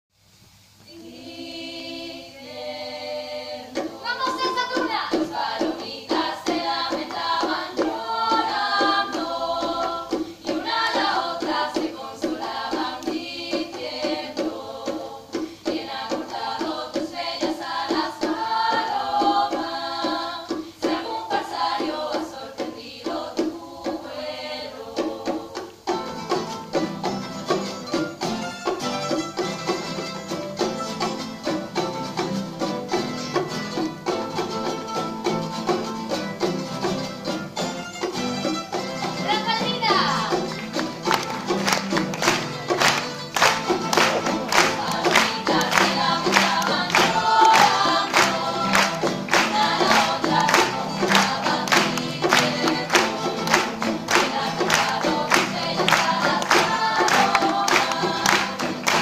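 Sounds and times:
women singing together: 0.8 - 26.2, 39.0 - 59.0
string ensemble strumming and plucking: 2.4 - 59.0.

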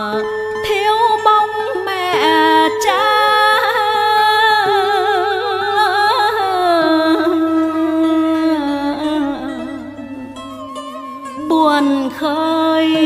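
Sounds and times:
instrumental accompaniment: 0.0 - 13.0.

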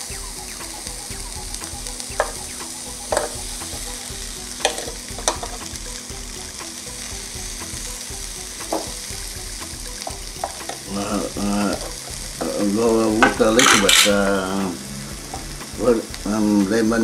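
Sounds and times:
shrimp sizzling on grill: 0.0 - 17.0
person talking: 10.8 - 14.8, 15.8 - 17.0.

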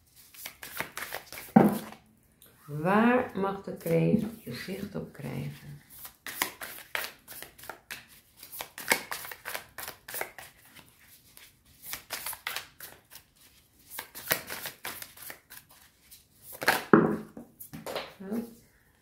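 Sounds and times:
cards being shuffled: 0.1 - 2.0, 5.9 - 17.0.

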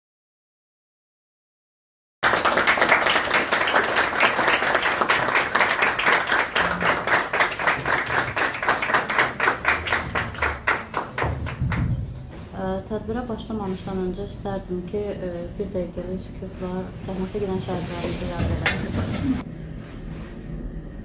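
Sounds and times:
crowd applauding: 2.2 - 12.2.

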